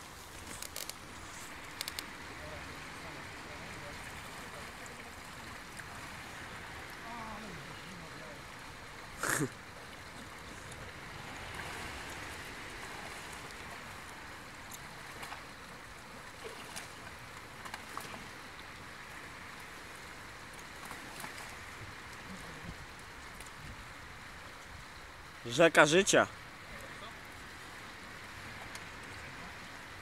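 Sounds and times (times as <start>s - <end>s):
river water running and splashing: 0.0s - 30.0s.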